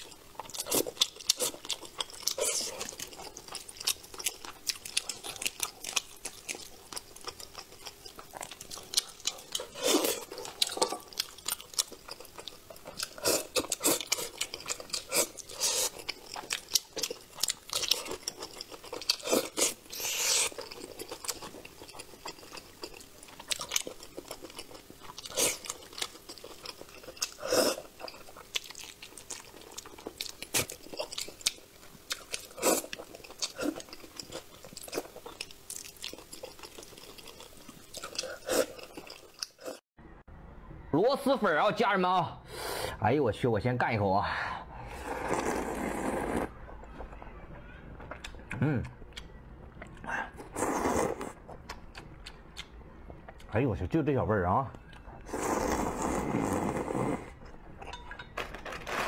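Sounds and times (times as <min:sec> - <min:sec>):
wet chewing: 0:00.0 - 0:39.8, 0:48.0 - 0:53.5.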